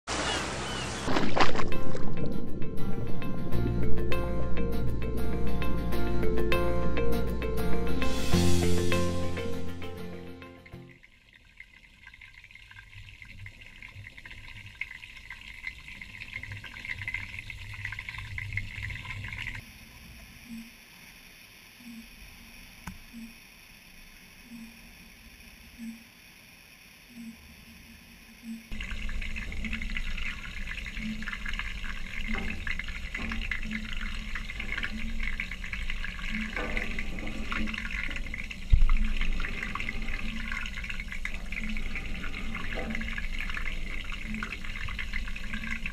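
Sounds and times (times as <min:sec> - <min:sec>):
underwater bubbling in fish tank: 0:11.0 - 0:19.6, 0:28.7 - 0:45.9.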